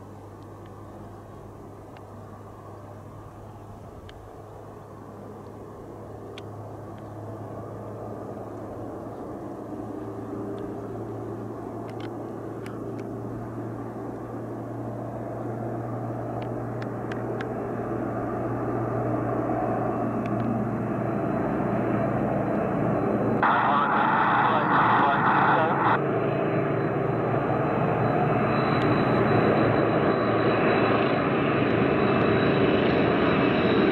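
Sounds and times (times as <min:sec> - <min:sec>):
propeller aircraft engine drone: 0:00.0 - 0:33.9
faint clicks: 0:04.0 - 0:04.3, 0:11.8 - 0:13.1.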